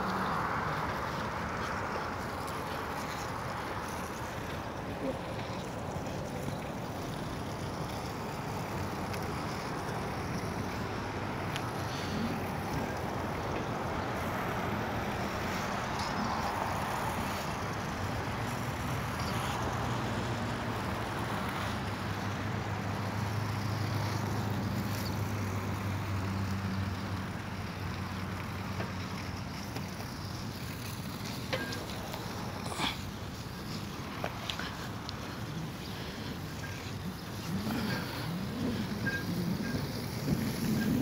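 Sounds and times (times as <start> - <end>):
skate wheels rolling on asphalt: 0.0 - 41.0
wind on microphone: 37.1 - 41.0.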